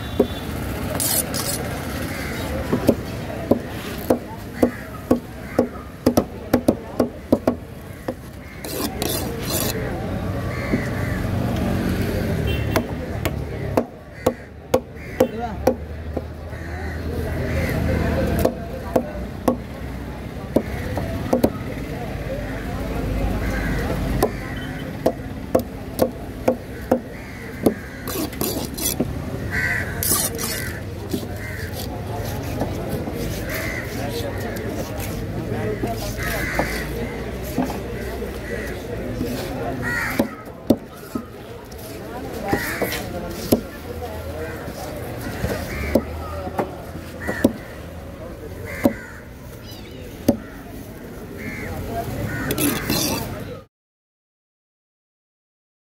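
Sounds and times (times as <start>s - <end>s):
knife chopping on wooden block: 2.6s - 9.7s, 12.8s - 16.3s, 20.5s - 21.6s, 25.0s - 29.2s, 42.5s - 43.7s, 45.4s - 46.7s, 47.3s - 47.7s, 52.5s - 53.2s
crow cawing: 4.5s - 6.0s, 10.5s - 11.3s, 14.1s - 15.4s, 23.4s - 24.8s, 26.6s - 31.8s, 33.4s - 34.5s, 36.2s - 37.3s, 38.0s - 38.9s, 39.8s - 40.5s, 42.5s - 43.0s, 45.2s - 46.2s, 47.2s - 47.8s, 48.6s - 50.7s, 51.4s - 53.2s.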